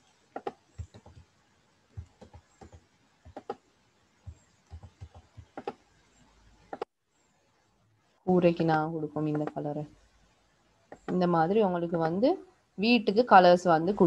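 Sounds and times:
computer mouse buttons clicking: 0:00.4 - 0:01.3, 0:02.0 - 0:03.6, 0:04.3 - 0:05.8, 0:09.3 - 0:09.6.

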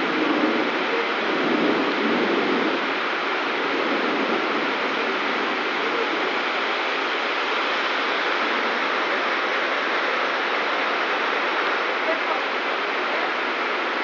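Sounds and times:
heavy rain on flooded street: 0:00.0 - 0:14.0.

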